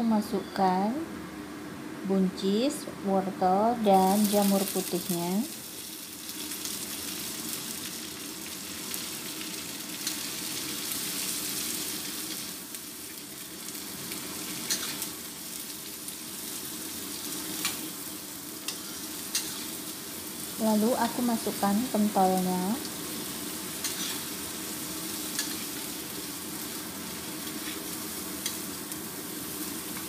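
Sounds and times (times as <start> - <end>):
vegetables sizzling in a wok: 0.0 - 30.0.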